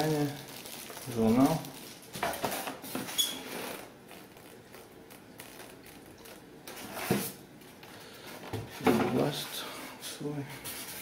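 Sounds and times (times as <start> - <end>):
packaging rustling: 0.0 - 7.4
foam lid scraping: 6.7 - 7.4.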